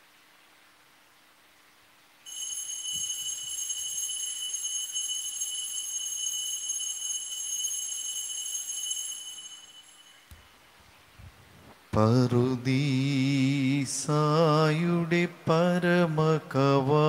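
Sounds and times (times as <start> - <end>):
church bell ringing: 2.3 - 10.4.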